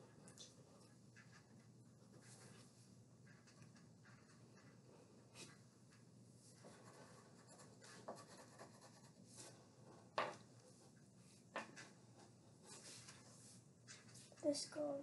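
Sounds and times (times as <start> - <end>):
marker scratching on paper: 6.5 - 10.1.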